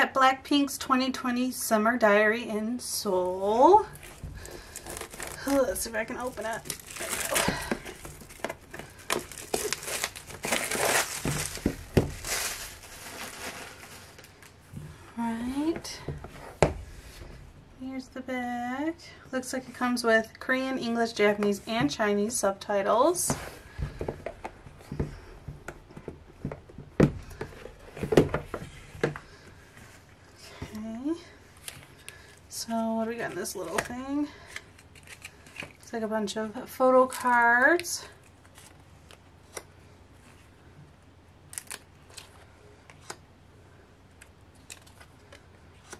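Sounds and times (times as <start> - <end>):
cardboard scraping and rustling: 3.9 - 14.3
plastic wrap crinkling and tearing: 3.9 - 14.6.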